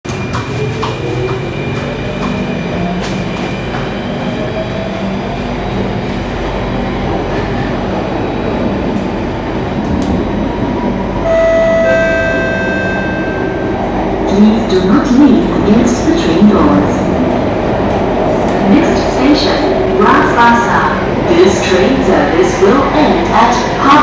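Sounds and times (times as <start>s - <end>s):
train wheels rumbling on rail: 0.1s - 11.2s, 11.9s - 24.0s
high steady tone: 11.2s - 14.6s.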